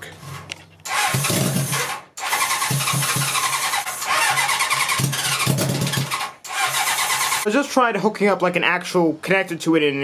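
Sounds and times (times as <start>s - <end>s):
electric starter cranking engine: 0.8s - 7.5s.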